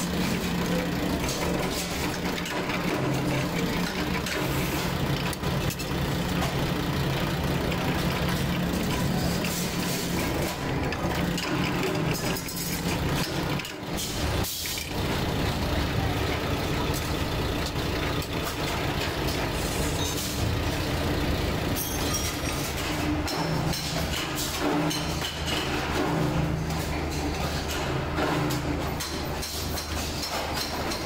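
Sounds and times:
machinery humming: 0:00.0 - 0:23.6
metal clatter: 0:00.1 - 0:15.0, 0:21.6 - 0:31.0.

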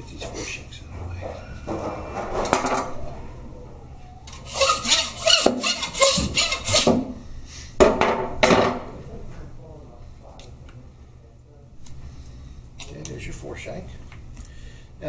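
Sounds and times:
hand saw cutting bone: 0:04.5 - 0:07.0.

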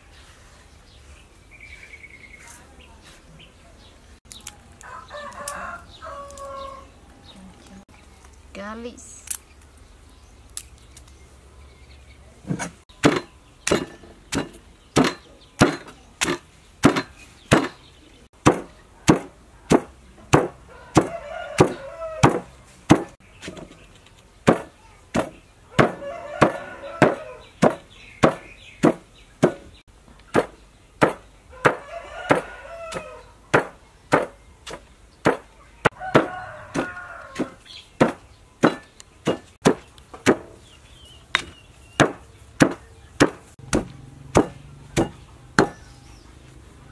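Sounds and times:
pestle pounding in stone mortar: 0:13.0 - 0:17.8, 0:18.4 - 0:23.2, 0:24.5 - 0:29.7, 0:30.3 - 0:35.5, 0:37.4 - 0:40.5, 0:41.3 - 0:45.8.

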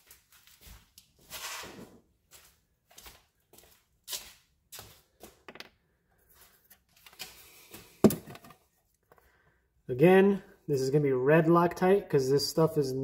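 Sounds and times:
footsteps on concrete: 0:00.0 - 0:01.4, 0:02.0 - 0:05.4.

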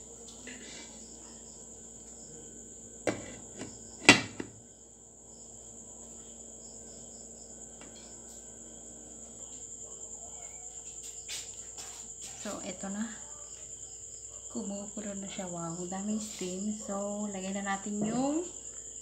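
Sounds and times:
crickets chirring: 0:00.0 - 0:19.0.

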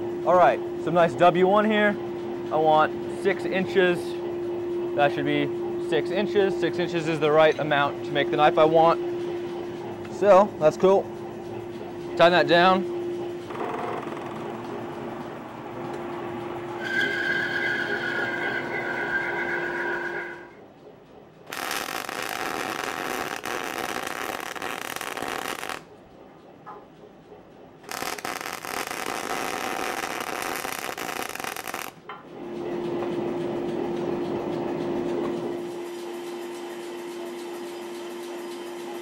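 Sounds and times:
forge humming: 0:00.0 - 0:39.0
bandsaw cutting metal: 0:21.5 - 0:25.8, 0:27.9 - 0:32.0
mig welding crackle: 0:21.5 - 0:25.8, 0:27.8 - 0:32.0.

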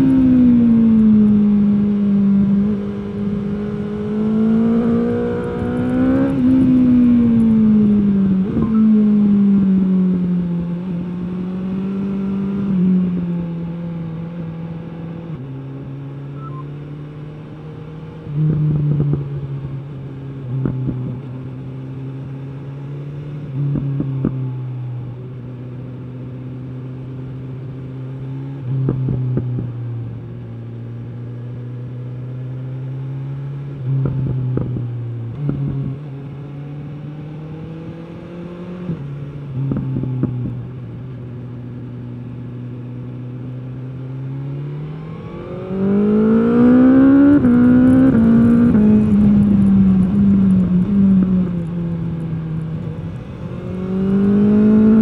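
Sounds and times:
motorcycle exhaust at low revs: 0:00.0 - 0:55.0
exhaust pops and crackles: 0:48.2 - 0:53.5.

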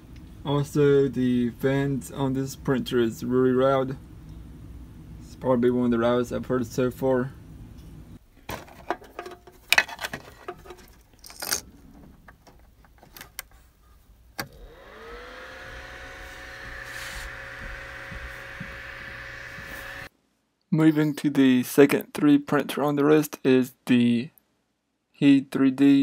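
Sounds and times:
cooling fan whining and humming: 0:14.4 - 0:20.1.

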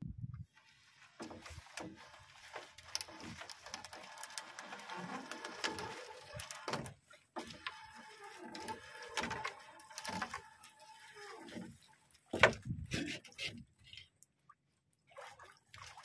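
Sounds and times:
fishing net clicking and rustling: 0:00.6 - 0:11.7.

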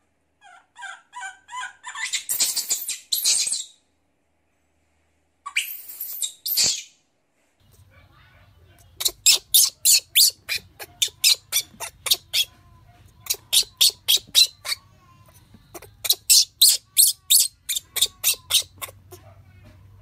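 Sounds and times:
baby monkey squealing: 0:00.4 - 0:03.7, 0:09.0 - 0:12.6, 0:13.2 - 0:19.3.

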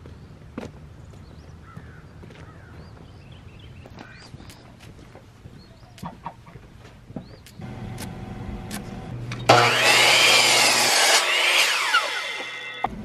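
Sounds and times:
miter saw cutting wood: 0:07.6 - 0:13.0.

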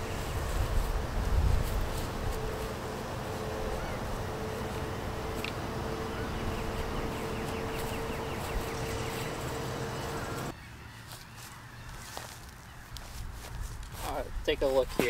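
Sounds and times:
steady hum: 0:00.0 - 0:10.6
faint chirps: 0:03.3 - 0:10.5.

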